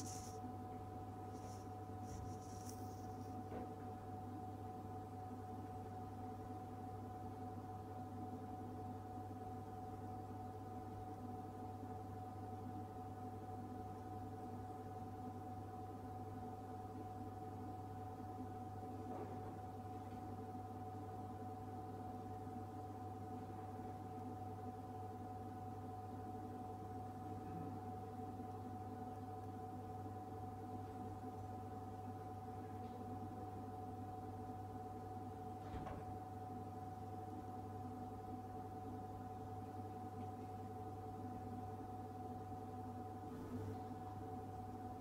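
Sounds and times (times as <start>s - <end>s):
vending machine humming: 0.0s - 3.4s, 43.2s - 45.0s.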